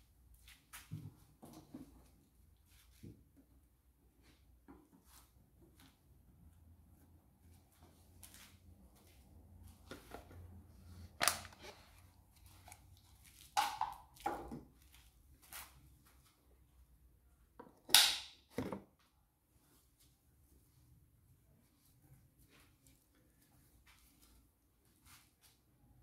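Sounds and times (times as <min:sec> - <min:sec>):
plastic knocks and clatters: 0:18.5 - 0:18.9.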